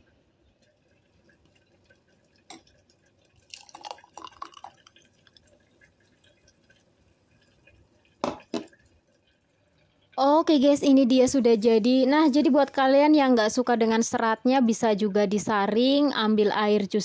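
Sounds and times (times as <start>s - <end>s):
juice pouring into a glass: 0.7s - 8.2s.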